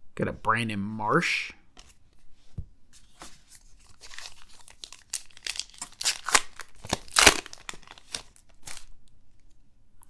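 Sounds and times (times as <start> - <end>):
wrapper tearing and crinkling: 3.8 - 9.0.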